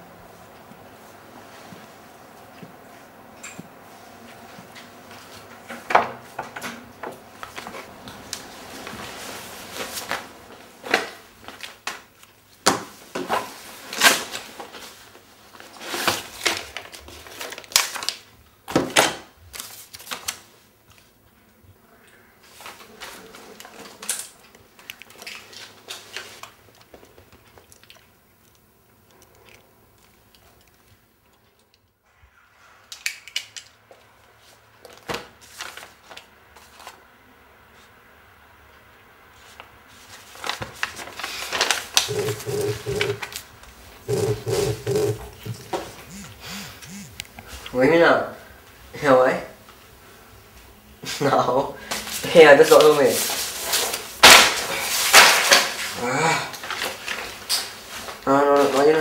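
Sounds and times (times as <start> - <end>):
paper rustling: 7.4 - 18.3, 19.5 - 21.1, 34.3 - 37.0, 39.4 - 43.5.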